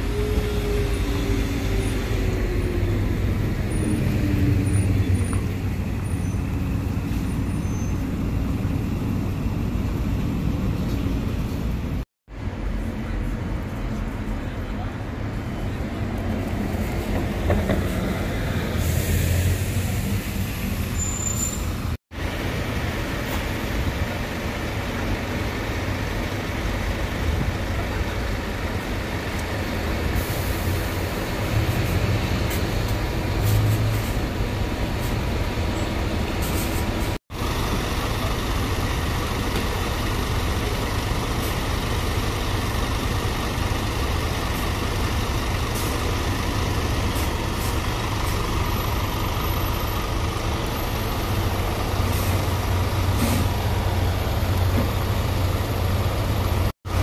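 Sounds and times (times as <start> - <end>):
bus diesel engines rumbling: 0.0 - 57.0.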